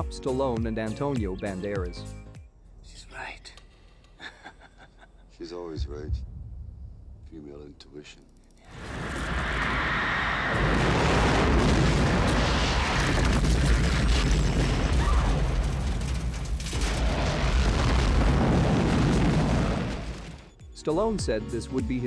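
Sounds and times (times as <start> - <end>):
deep rumbling explosion: 8.7 - 20.5.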